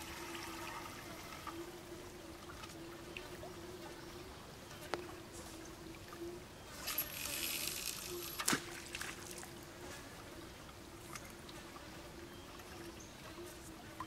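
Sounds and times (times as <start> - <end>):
faint steady hum: 0.0 - 14.0
fishing line hissing off reel: 6.8 - 8.5.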